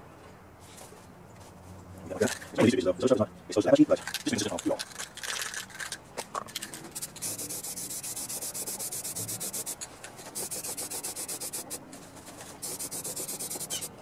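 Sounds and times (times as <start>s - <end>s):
aerosol spray can hissing: 7.0s - 11.8s, 12.6s - 14.0s.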